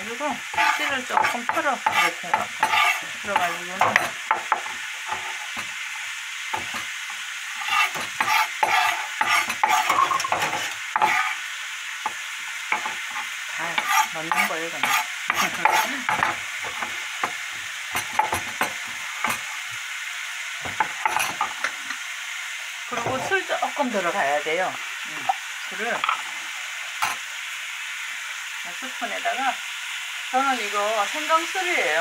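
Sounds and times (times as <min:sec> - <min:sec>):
food sizzling in a frying pan: 0:00.0 - 0:32.0.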